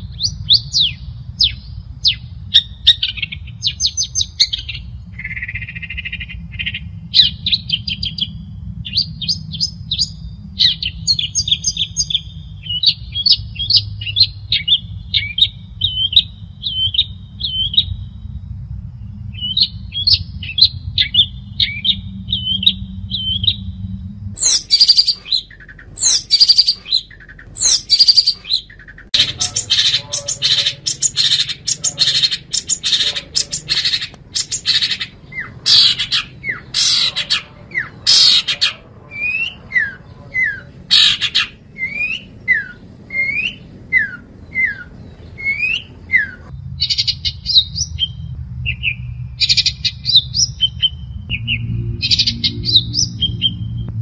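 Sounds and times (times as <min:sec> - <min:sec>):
bird harsh calls: 0:00.0 - 0:18.3, 0:19.2 - 0:53.7
bird singing chirps and trills: 0:00.0 - 0:54.0
low background hum: 0:00.0 - 0:54.0.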